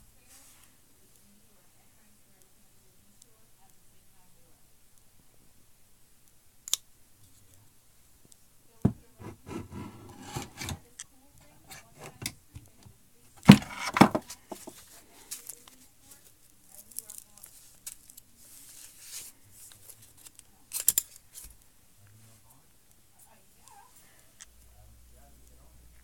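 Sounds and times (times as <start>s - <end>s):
rubbing and scraping: 9.2s - 10.8s, 13.4s - 15.0s
knocking: 13.4s - 14.7s.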